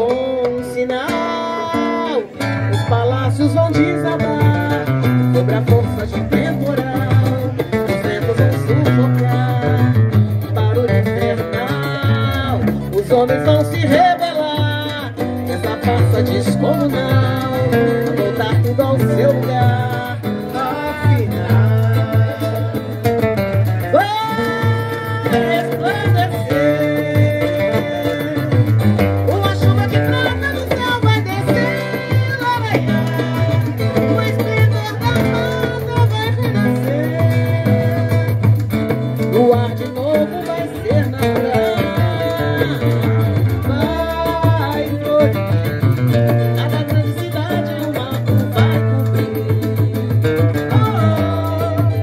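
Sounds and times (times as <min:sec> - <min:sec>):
samba band playing: 0:00.0 - 0:52.0
woman singing lead vocal: 0:10.9 - 0:23.2, 0:23.9 - 0:28.7, 0:29.3 - 0:38.4, 0:39.3 - 0:45.6, 0:46.6 - 0:52.0.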